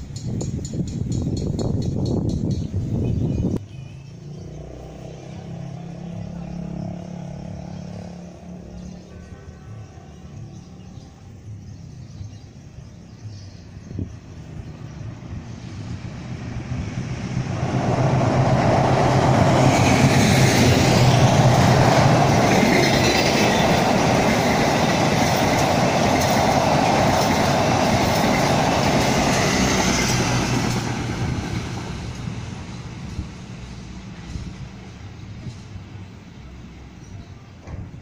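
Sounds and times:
train rumbling over bridge: 0.0s - 3.6s, 4.6s - 38.0s
train wheel clatter: 17.7s - 32.3s.

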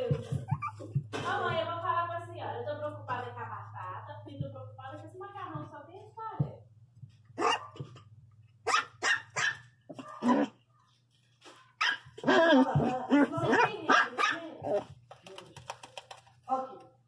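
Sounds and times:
puppy barking sharply: 7.4s - 7.8s, 8.6s - 10.5s, 11.8s - 12.1s, 13.6s - 14.4s.

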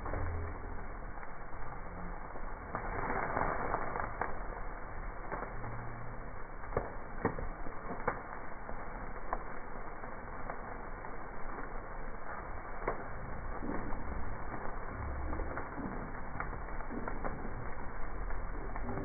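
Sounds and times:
wood fire crackling and popping: 0.0s - 19.0s.

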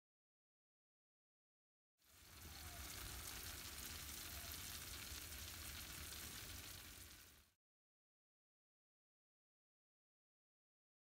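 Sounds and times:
sizzling hiss in oven: 2.0s - 7.6s.

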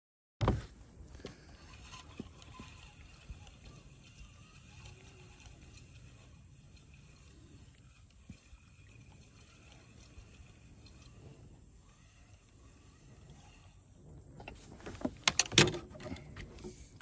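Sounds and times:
water lapping against hull: 1.9s - 14.3s.

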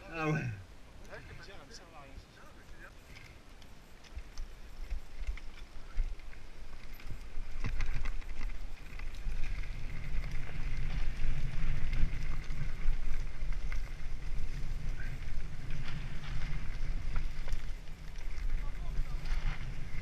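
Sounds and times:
bike tyres on dirt: 0.1s - 20.0s
wind rumble on microphone: 3.8s - 20.0s
bike rattling and knocking: 4.8s - 20.0s.

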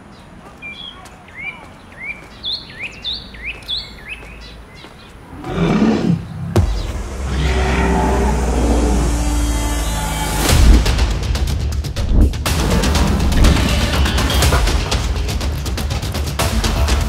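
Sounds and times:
bird chirping: 0.0s - 10.8s
dinosaur roar: 5.3s - 10.9s, 12.8s - 14.4s.

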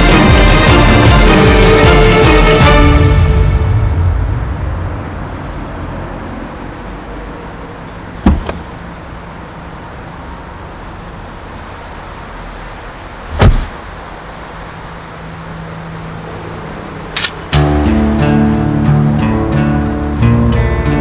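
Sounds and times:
car door latch click and clunk: 8.2s - 8.7s
heavy door thump: 8.2s - 8.7s.

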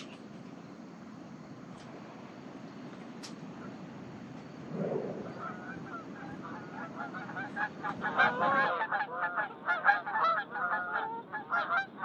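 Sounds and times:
geese honking: 5.1s - 12.0s.

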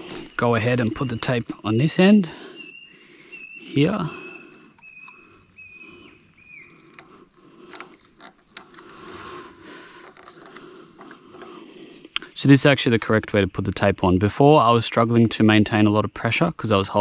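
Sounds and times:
tape rustling and clicking: 3.9s - 5.6s, 6.6s - 12.2s.

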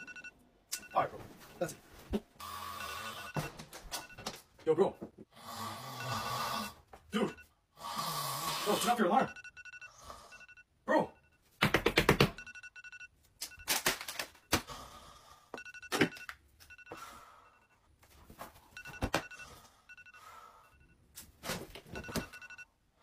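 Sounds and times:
alarm beeping: 0.0s - 1.8s, 2.4s - 5.1s, 6.0s - 7.5s, 8.8s - 11.5s, 12.3s - 13.8s, 15.6s - 17.9s, 18.7s - 21.1s, 21.9s - 22.7s.

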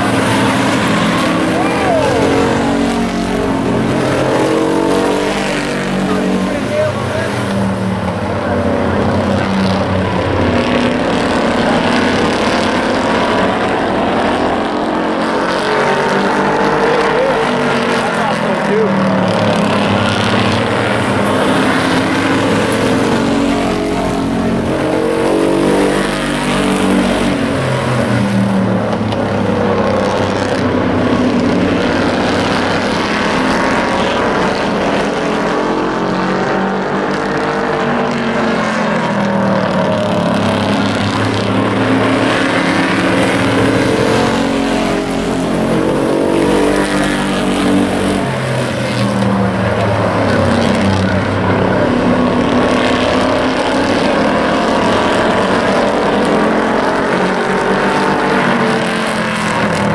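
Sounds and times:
race truck engines revving: 0.0s - 59.9s.

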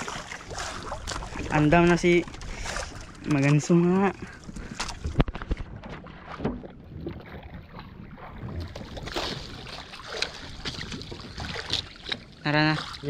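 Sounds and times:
water splashing against boat hull: 0.0s - 13.0s
wind on microphone: 4.4s - 12.4s.

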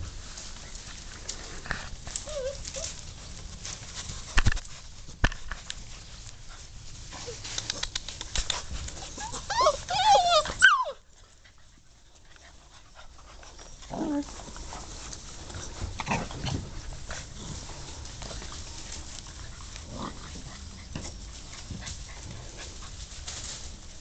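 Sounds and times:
puppies whimpering: 2.2s - 3.0s, 8.9s - 11.8s.

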